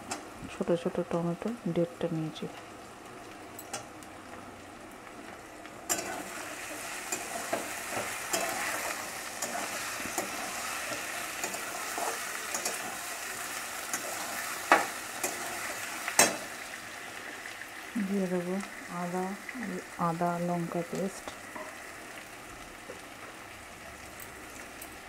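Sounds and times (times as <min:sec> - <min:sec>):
vegetables sizzling in oil: 0:00.0 - 0:25.0
metal spatula scraping pan: 0:05.9 - 0:13.0.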